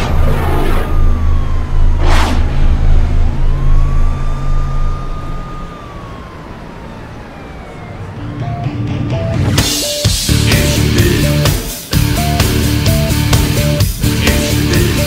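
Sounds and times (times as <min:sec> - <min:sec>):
whoosh: 0:00.0 - 0:06.7
heavy pulsing low rumble: 0:00.0 - 0:07.8
siren wailing: 0:00.0 - 0:10.1.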